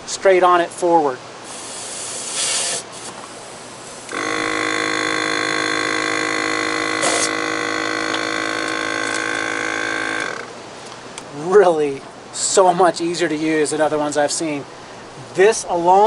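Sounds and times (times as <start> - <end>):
air hissing: 1.4 - 10.5
air compressor running: 1.4 - 10.6.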